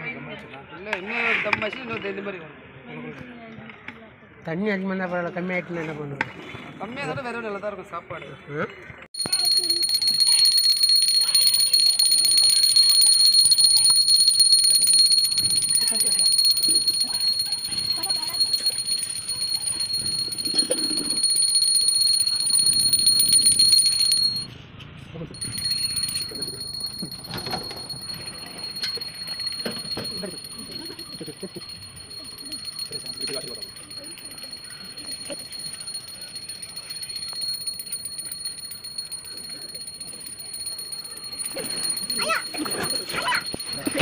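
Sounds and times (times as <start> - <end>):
hand bell ringing rapidly: 9.2 - 24.5, 25.4 - 44.0.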